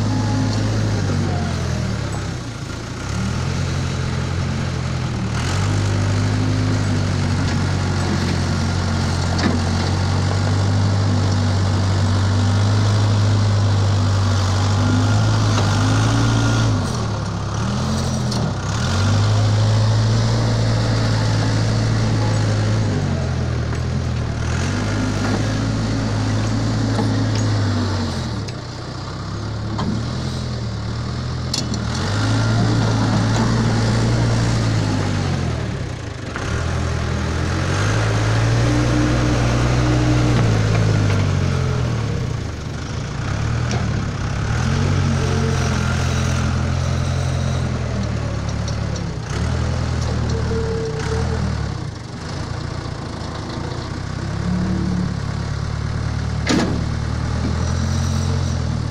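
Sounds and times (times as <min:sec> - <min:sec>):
backhoe diesel engine running: 0:00.0 - 0:58.9.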